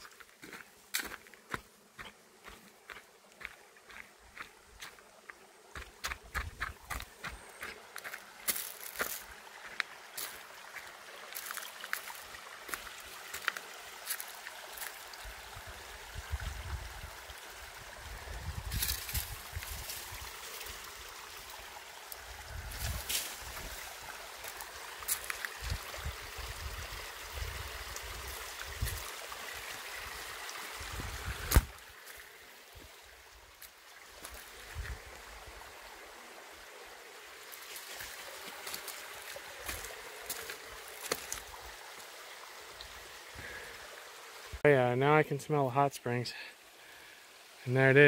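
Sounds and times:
creek running over rocks: 0.0 - 48.0
footsteps: 5.8 - 10.4, 37.6 - 41.4
brush rustling: 6.1 - 10.4, 18.6 - 20.8, 22.1 - 25.8, 27.9 - 29.2, 31.0 - 32.4, 37.5 - 41.6.

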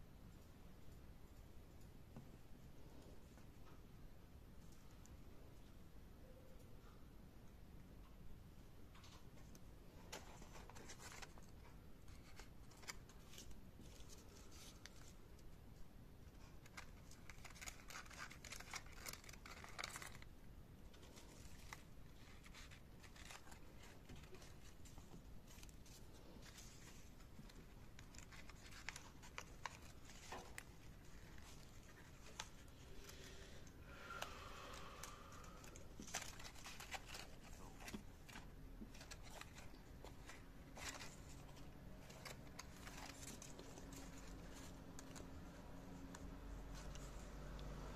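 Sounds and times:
paper rustling and crinkling: 8.9 - 15.6, 16.3 - 47.6.

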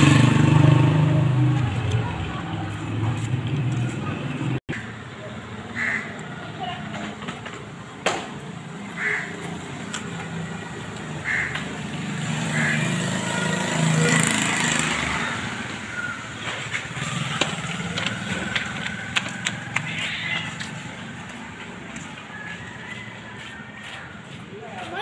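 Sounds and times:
vehicle engine passing: 0.0 - 4.6, 8.5 - 25.0.

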